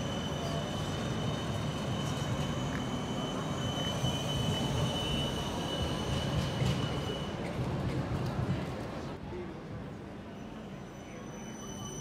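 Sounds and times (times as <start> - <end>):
tram high whine: 0.0 - 7.6
tram rumbling past: 0.0 - 12.0.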